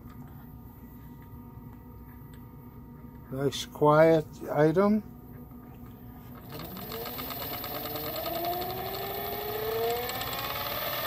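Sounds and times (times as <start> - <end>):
electric stirrer motor whine: 6.4 - 11.0.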